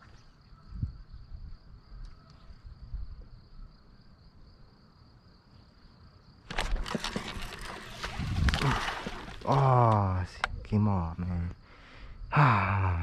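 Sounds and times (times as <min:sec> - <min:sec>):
wind rumble on microphone: 0:00.6 - 0:03.5, 0:07.9 - 0:09.1.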